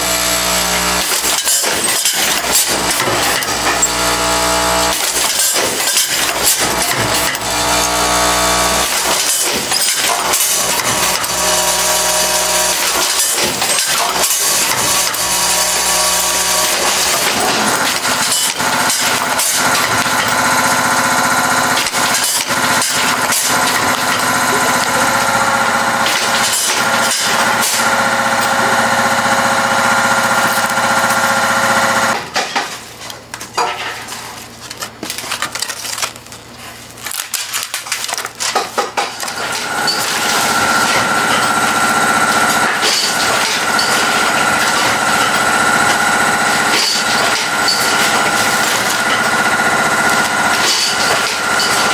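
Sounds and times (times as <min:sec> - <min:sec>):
packaging machine humming and clacking: 0:00.0 - 0:51.9
scattered clicking and rattling: 0:00.2 - 0:33.4, 0:37.0 - 0:51.9.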